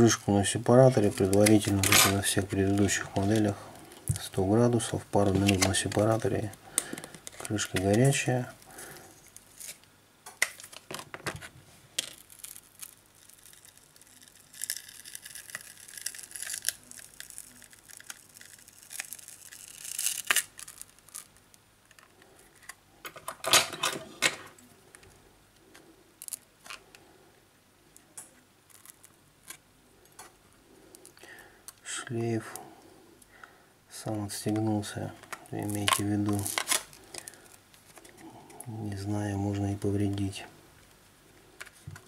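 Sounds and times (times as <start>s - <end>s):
crackly scratchy adhesive peeling: 0.0s - 22.8s, 24.6s - 27.0s, 28.1s - 31.3s, 34.5s - 38.6s.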